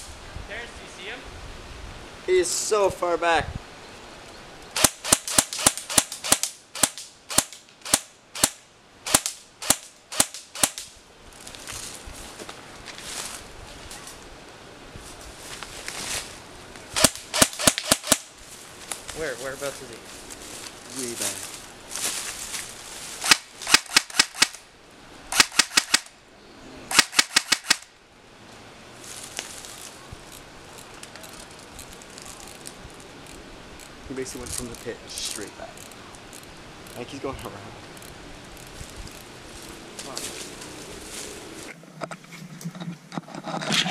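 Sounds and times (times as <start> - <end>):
airsoft gun firing single shots: 4.8 - 10.9, 17.0 - 18.3, 23.2 - 24.6, 25.3 - 26.1, 26.9 - 27.9
footsteps rustling through undergrowth: 11.2 - 23.8, 28.5 - 37.1, 37.7 - 42.5.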